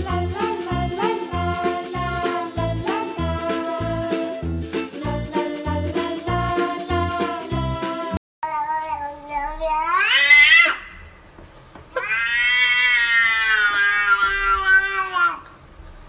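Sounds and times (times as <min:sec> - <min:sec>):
cat yowling: 0:09.4 - 0:11.0, 0:12.0 - 0:15.5.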